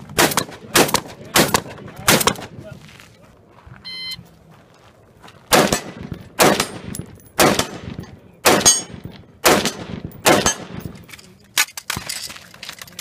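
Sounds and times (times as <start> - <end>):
handgun shots echoing: 0.2 - 2.5, 5.5 - 11.0.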